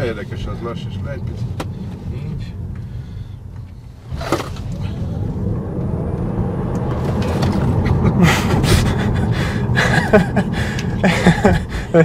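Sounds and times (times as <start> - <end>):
road and tyre rumble: 0.0 - 12.0
laughter: 7.8 - 12.0.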